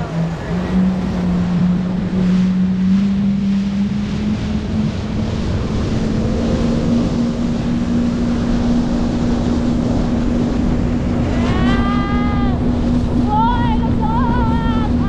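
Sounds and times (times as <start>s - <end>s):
jet ski engine whining: 0.0s - 15.0s
rushing wind and water: 0.0s - 15.0s.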